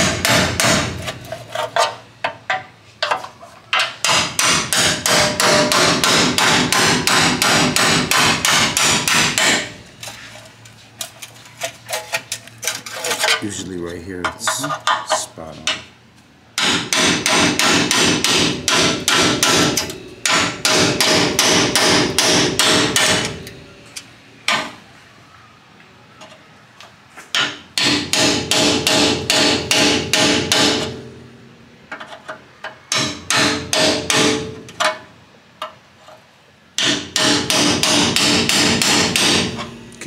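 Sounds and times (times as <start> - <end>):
hammer striking chisel on metal: 0.0 - 1.0, 3.8 - 9.8, 16.6 - 23.6, 27.3 - 31.0, 32.9 - 35.0, 36.8 - 39.7.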